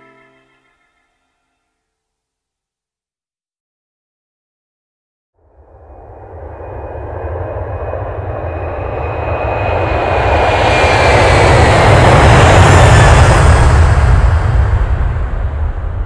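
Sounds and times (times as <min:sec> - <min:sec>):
high engine whine: 0:05.4 - 0:16.0
jet engine roar: 0:05.9 - 0:16.0.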